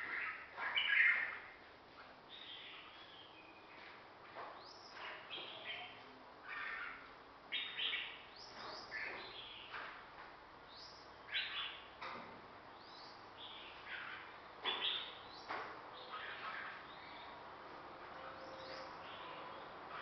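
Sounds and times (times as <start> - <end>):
songbirds whistling: 18.2 - 20.0.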